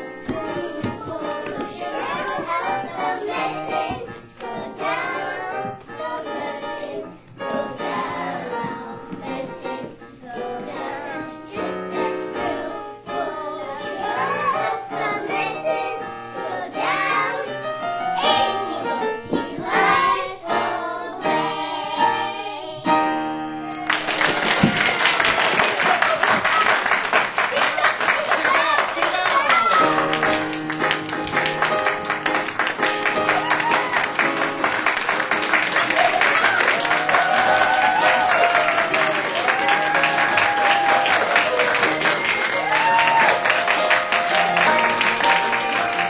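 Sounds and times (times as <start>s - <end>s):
children singing: 0.0s - 22.9s
piano accompaniment: 0.0s - 46.0s
audience applause: 23.7s - 46.0s.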